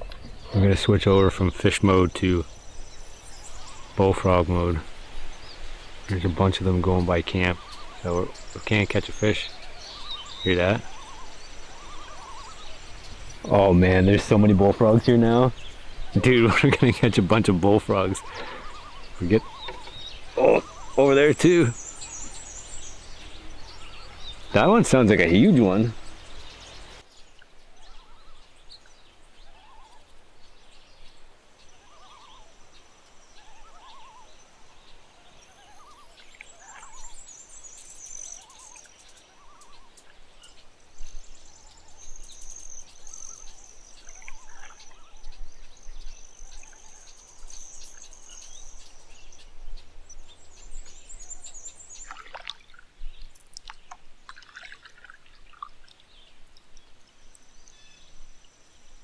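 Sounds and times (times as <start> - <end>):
faint frog calls: 7.0 - 14.6, 17.3 - 27.0, 31.6 - 49.6.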